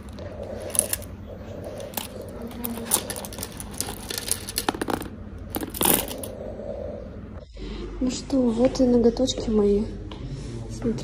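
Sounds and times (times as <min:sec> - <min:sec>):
low room hum: 0:00.0 - 0:11.0
plastic tips clicking and rattling: 0:01.8 - 0:06.3.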